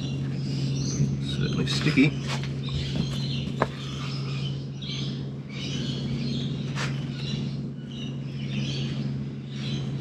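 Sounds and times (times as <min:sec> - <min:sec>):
birds chirping and calling: 0:00.0 - 0:10.0
steady low hum: 0:00.0 - 0:10.0.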